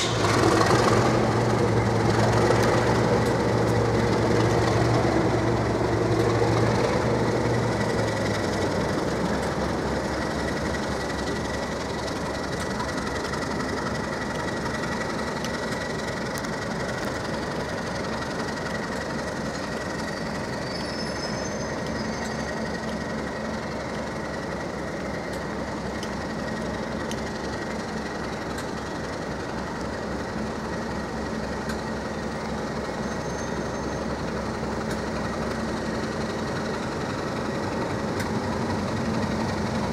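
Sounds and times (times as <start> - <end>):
diesel locomotive engines idling: 0.0 - 39.9.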